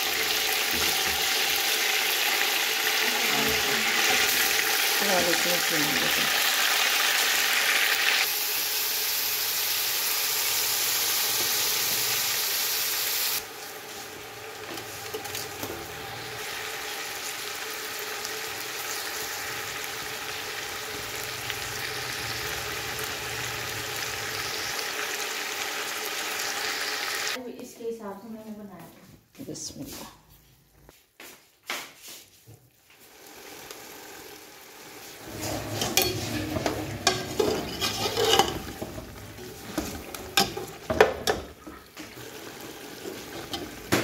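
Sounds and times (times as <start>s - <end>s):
chicken sizzling in hot oil: 0.0s - 27.4s, 33.0s - 44.0s
metal ladle stirring: 35.2s - 41.8s.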